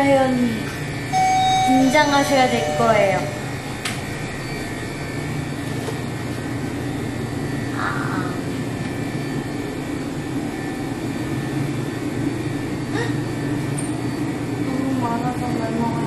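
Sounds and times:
shop background hum: 0.0s - 16.0s
high wavering sound: 1.1s - 3.8s.

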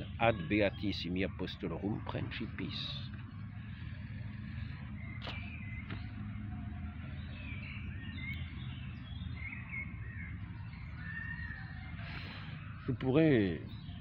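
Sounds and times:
low outdoor rumble: 0.0s - 14.0s
small birds chirping: 0.0s - 14.0s
sharp click: 5.2s - 6.0s.

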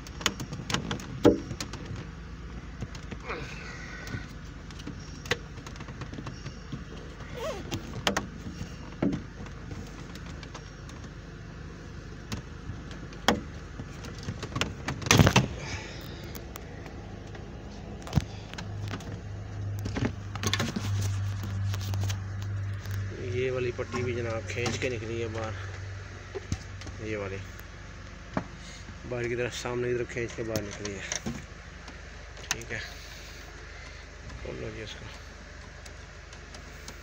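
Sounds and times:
low steady hum: 0.0s - 37.0s
rattling knocks: 0.2s - 2.1s.

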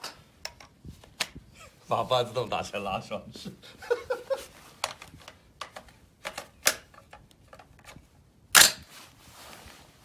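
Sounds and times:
rifle bolt slamming forward: 8.5s - 8.9s.

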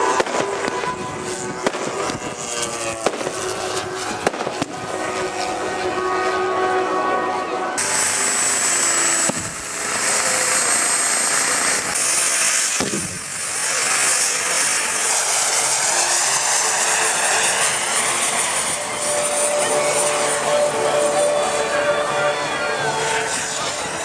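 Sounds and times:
model helicopter high whine: 0.0s - 24.0s.

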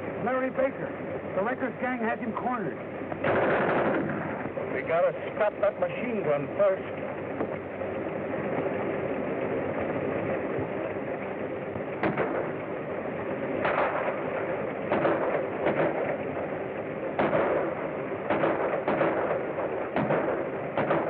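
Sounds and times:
film soundtrack hiss and hum: 0.0s - 21.0s
gunshots: 3.2s - 4.4s, 12.0s - 12.6s, 13.6s - 16.5s, 17.2s - 21.0s.

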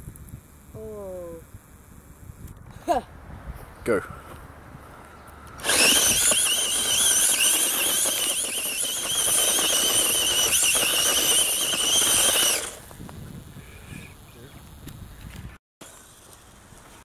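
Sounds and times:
toy car motor whining: 5.6s - 12.9s
tyres scrabbling on gravel: 5.6s - 13.0s.

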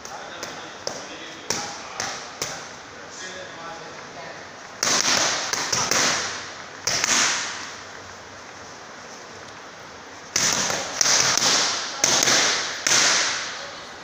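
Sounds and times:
boxing gloves hitting mitts: 4.8s - 7.7s, 10.3s - 13.6s.

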